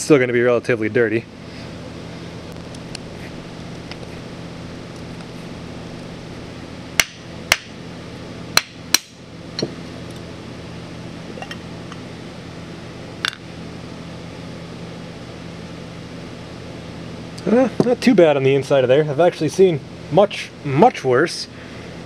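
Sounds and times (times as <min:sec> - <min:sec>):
low hum: 0:01.2 - 0:15.4.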